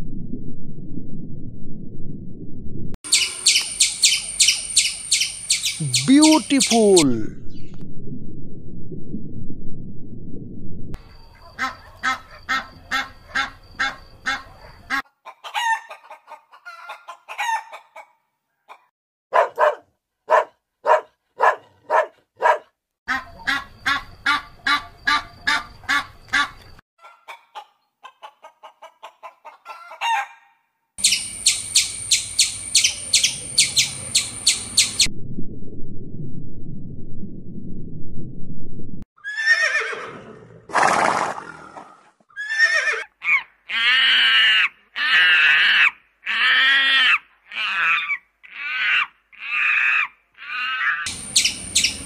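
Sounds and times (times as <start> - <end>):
poultry clucking and chirping: 11.3 - 18.9, 23.1 - 30.4.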